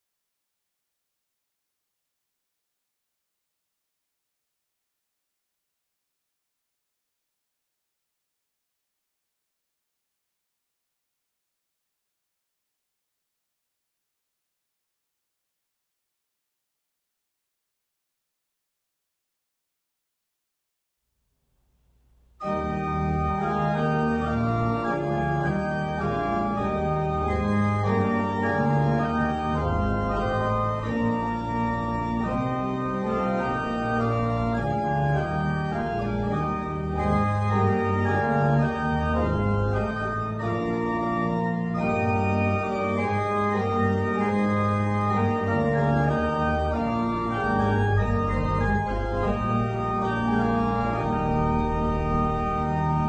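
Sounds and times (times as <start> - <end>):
church organ playing chords: 22.4 - 53.0.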